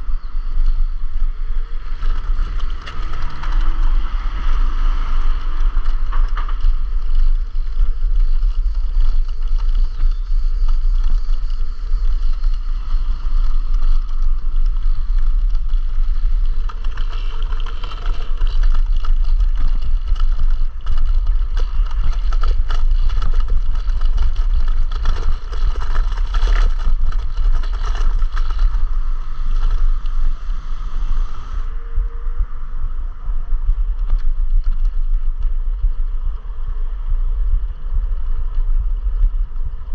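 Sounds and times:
wind buffeting microphone: 0.0s - 39.9s
scooter rattles and clicks: 0.1s - 31.8s.

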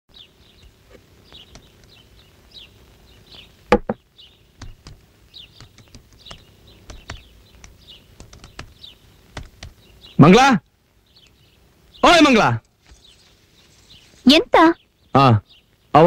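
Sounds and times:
small birds chirping: 0.1s - 16.0s
sharp knocks: 3.7s - 4.0s
laptop keys typing: 4.6s - 5.0s, 5.6s - 9.8s.

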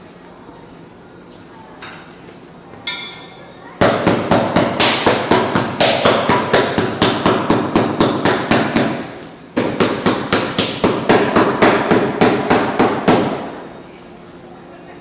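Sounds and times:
hammer beating rubber sole: 3.9s - 13.4s.

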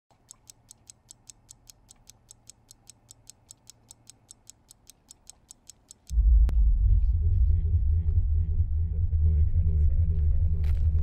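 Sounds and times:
clock ticking fast: 0.1s - 6.2s
low steady hum: 6.1s - 11.0s.

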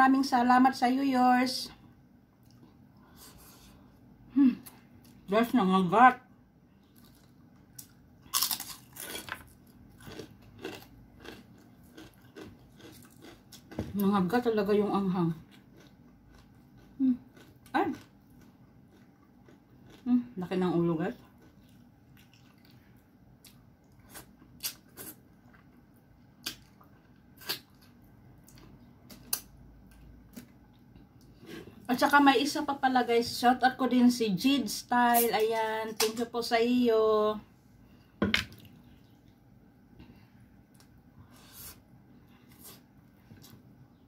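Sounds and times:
crunchy food chewing: 6.8s - 14.1s, 15.3s - 20.2s, 21.1s - 31.9s
wet mouth eating sounds: 7.0s - 13.8s, 15.5s - 20.1s, 21.2s - 22.8s.

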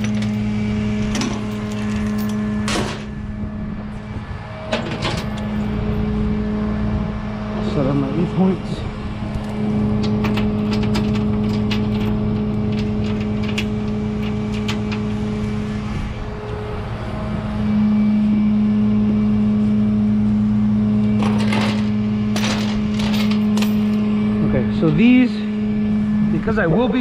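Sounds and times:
chain rattling: 0.0s - 2.6s, 9.4s - 15.2s, 21.2s - 24.0s
truck engine idling: 0.0s - 27.0s
metallic chain clinks: 22.4s - 24.0s.

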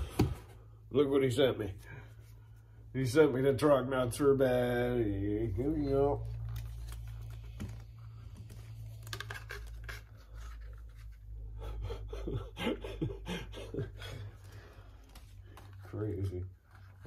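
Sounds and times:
plastic packaging rustling: 5.6s - 11.4s.

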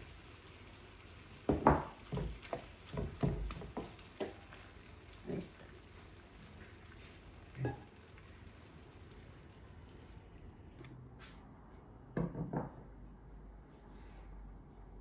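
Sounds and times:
low sizzle from a pan: 0.0s - 10.9s
utensils knocking frying pan: 1.5s - 4.5s.

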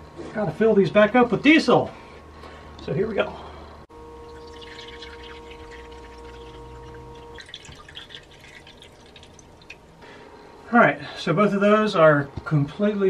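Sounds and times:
steady hum: 0.0s - 13.0s
fuel pouring and dripping: 3.9s - 10.5s.

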